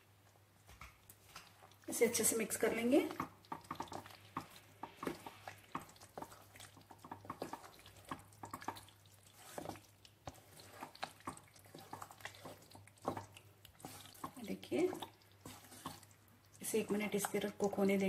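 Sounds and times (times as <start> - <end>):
spoon stirring pasta in sauce: 0.2 - 18.0.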